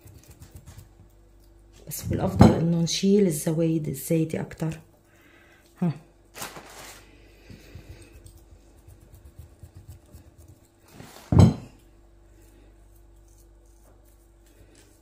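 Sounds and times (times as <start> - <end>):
dough handling noises: 5.8 - 15.0
glass dish thumping on table: 11.3 - 11.7.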